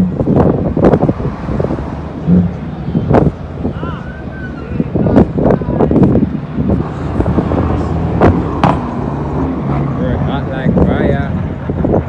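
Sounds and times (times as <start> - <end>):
wind knocking on microphone: 0.0 - 3.8, 4.8 - 9.0
diesel truck engine rumbling: 0.0 - 12.0.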